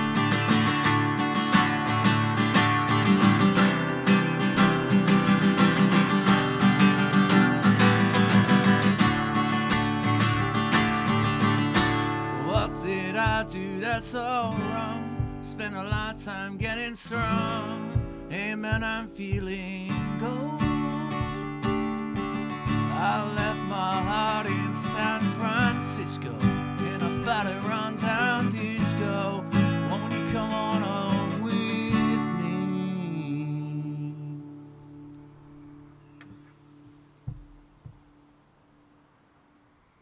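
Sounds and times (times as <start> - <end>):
strummed acoustic guitar: 0.0 - 38.2
man singing: 10.3 - 34.8.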